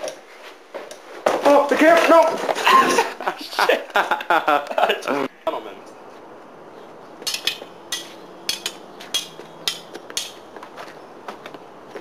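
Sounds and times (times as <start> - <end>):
swords clashing: 7.2 - 10.5.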